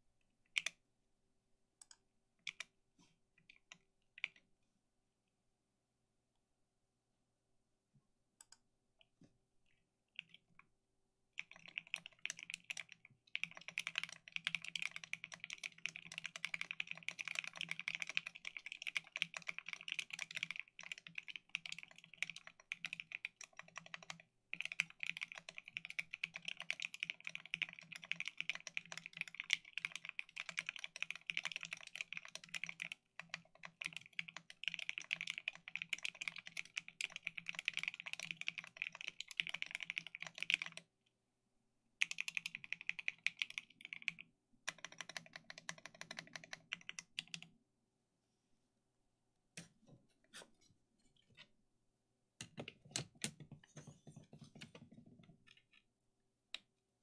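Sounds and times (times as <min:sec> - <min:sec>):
mechanical keyboard typing: 0:11.4 - 0:40.9, 0:42.0 - 0:47.5.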